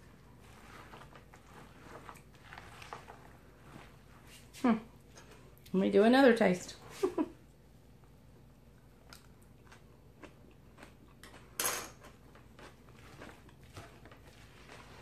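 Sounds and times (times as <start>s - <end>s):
utensil stirring coleslaw in bowl: 0.0s - 5.6s, 10.2s - 15.0s.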